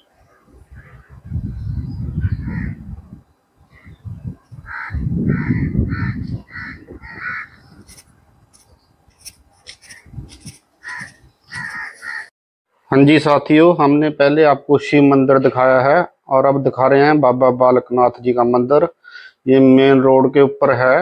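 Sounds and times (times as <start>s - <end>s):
wind buffeting microphone: 0.1s - 12.2s
crow cawing: 2.4s - 2.8s, 4.6s - 7.8s, 10.8s - 12.3s.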